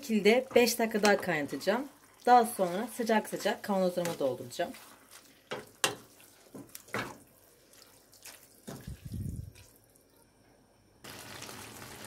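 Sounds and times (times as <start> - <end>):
spoon stirring thick sauce: 0.0 - 8.8.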